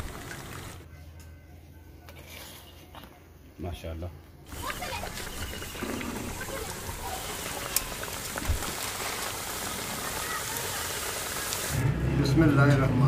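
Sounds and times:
oil sizzling in deep frying: 0:04.5 - 0:11.8.

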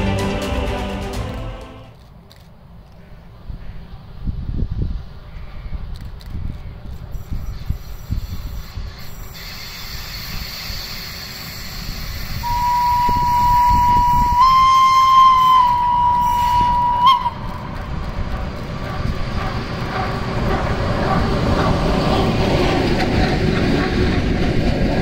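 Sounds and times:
train running rumble: 0:00.0 - 0:02.1, 0:05.9 - 0:25.0
locomotive warning signal: 0:12.4 - 0:17.7.

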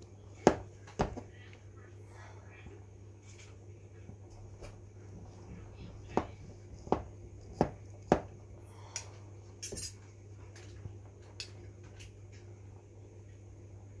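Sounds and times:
steady low hum: 0:00.0 - 0:14.0
cutlery clinking on steel pot: 0:09.6 - 0:10.0.

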